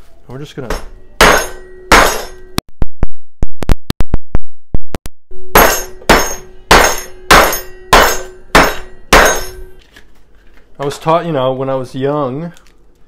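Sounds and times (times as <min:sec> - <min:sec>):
pan ringing: 0:00.8 - 0:02.6, 0:05.6 - 0:09.8.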